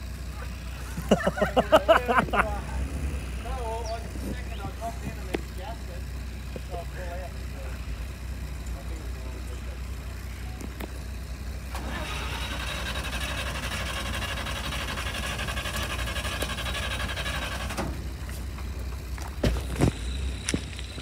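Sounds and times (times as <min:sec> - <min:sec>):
starter motor cranking engine: 0:11.6 - 0:19.0.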